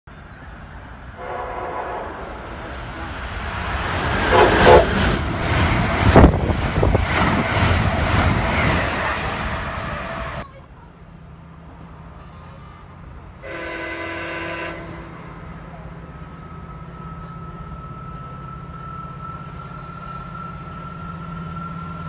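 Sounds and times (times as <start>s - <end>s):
train passing at speed: 0.1s - 22.0s
train horn blasts: 1.2s - 2.6s, 4.2s - 5.2s, 13.4s - 15.5s.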